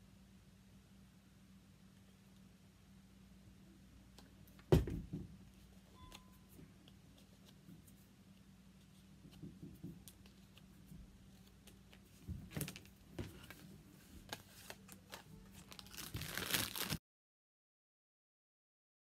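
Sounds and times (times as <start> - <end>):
faint low hum: 0.0 - 16.5
paper rustling: 10.0 - 17.0.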